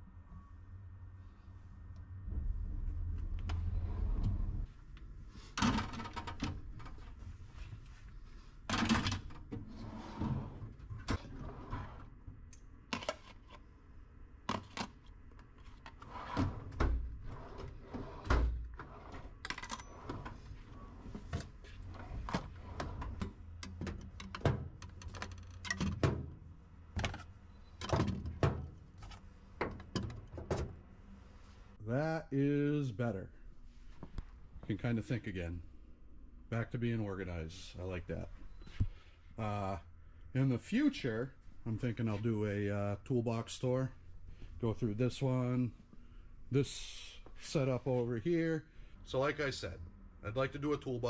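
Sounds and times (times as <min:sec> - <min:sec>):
drawers thudding open and shut: 0:05.6 - 0:06.9, 0:08.7 - 0:12.0, 0:16.0 - 0:20.4, 0:21.2 - 0:26.4, 0:27.8 - 0:30.8.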